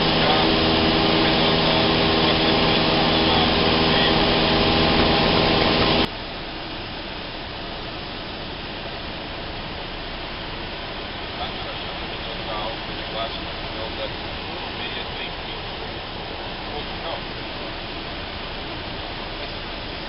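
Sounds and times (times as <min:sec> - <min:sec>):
light aircraft engine humming: 0:00.0 - 0:20.0.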